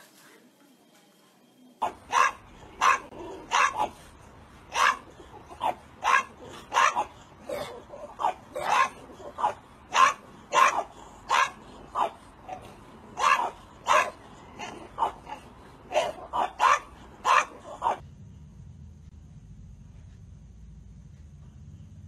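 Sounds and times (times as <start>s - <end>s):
dogs barking: 1.8s - 18.0s.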